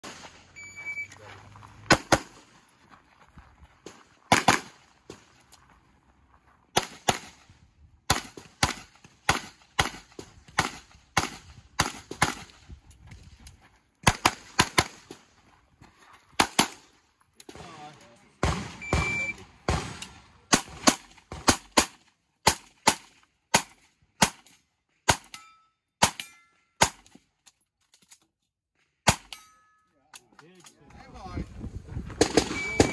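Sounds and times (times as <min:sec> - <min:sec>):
handgun shots: 0:04.3 - 0:04.7.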